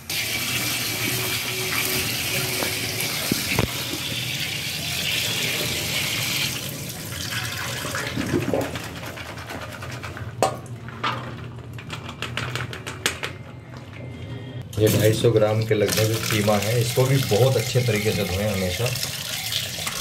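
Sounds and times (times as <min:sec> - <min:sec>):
tap water running into colander: 0:00.0 - 0:08.9, 0:14.8 - 0:20.0.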